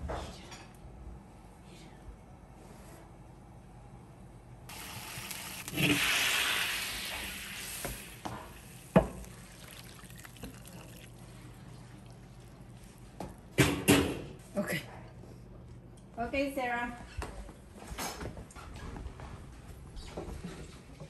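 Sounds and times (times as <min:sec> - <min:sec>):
broth pouring into a bowl: 0:04.7 - 0:12.2.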